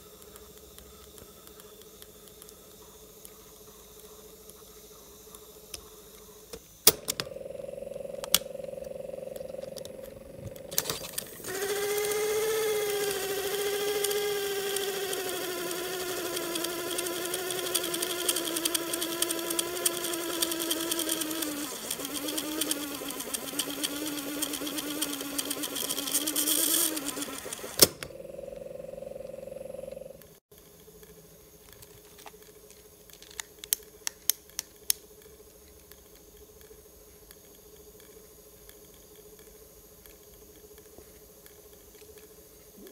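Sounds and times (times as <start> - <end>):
tape drive motor hum: 0.0 - 42.9
crackle of ticks: 0.1 - 3.4
mechanical clicks: 5.3 - 31.9.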